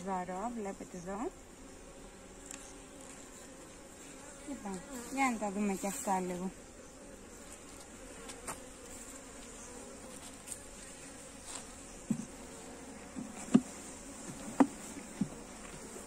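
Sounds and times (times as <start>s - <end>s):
honeybees buzzing: 0.0s - 16.0s
knocks and clicks from hive handling: 11.6s - 12.4s, 13.0s - 16.0s.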